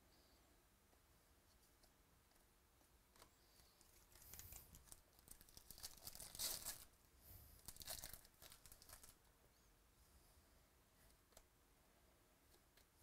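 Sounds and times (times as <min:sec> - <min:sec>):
wrapper tearing and crinkling: 0:04.0 - 0:06.9, 0:07.6 - 0:09.2.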